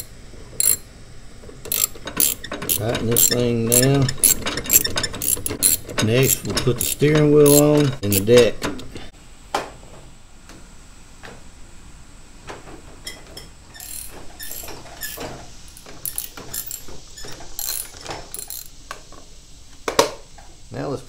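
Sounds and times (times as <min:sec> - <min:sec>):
socket ratchet clicking: 0:00.0 - 0:00.8, 0:01.7 - 0:08.9, 0:13.8 - 0:18.7.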